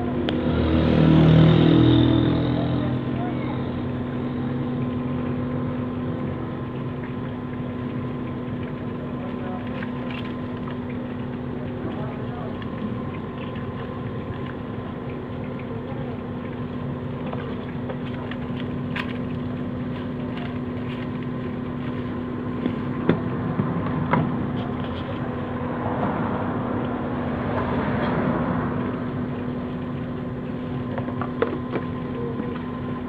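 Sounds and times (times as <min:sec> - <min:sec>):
motor hum: 0:00.0 - 0:33.0
wet scraping of fish: 0:06.9 - 0:32.7.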